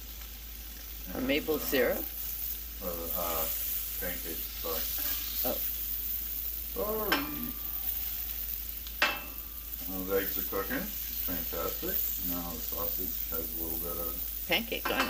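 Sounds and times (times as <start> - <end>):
food sizzling on griddle: 0.0 - 15.0.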